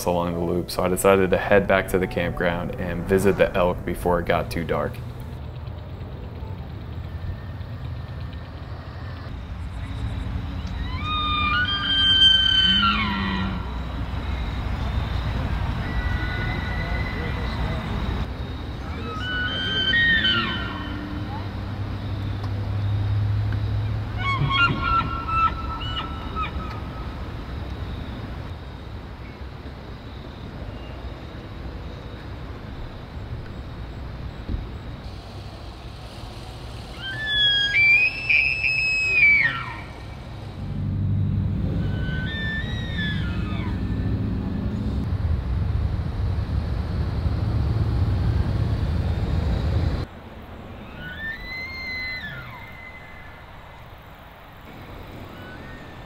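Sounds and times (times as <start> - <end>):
steady low rumble: 0.0 - 10.6, 33.2 - 38.6, 39.7 - 42.2, 43.5 - 50.6
elk bugling: 10.6 - 21.6, 24.0 - 27.3, 35.0 - 45.1
elk bugle whistle: 36.9 - 40.1.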